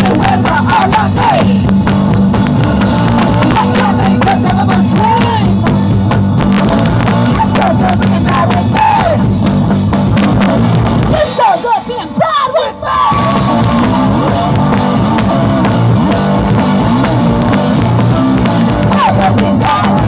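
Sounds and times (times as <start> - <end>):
woman singing: 0.0 - 1.6, 2.6 - 5.6, 7.2 - 9.2, 11.1 - 13.2, 18.8 - 20.0
live rock band playing: 0.0 - 20.0.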